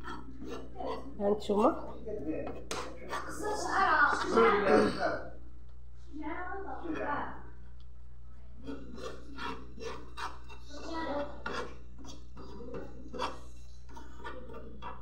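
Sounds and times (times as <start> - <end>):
metal spoon scraping frying pan: 0.0 - 4.2, 8.6 - 15.0.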